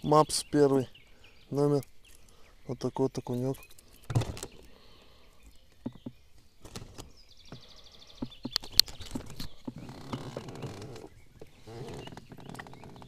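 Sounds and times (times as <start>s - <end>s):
rustling and crackling: 3.2s - 13.0s
sharp clicks: 8.2s - 11.1s.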